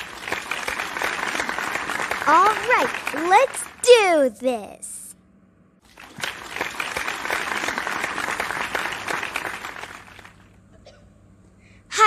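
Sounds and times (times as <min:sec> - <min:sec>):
audience applauding: 0:00.0 - 0:04.0, 0:05.9 - 0:10.6.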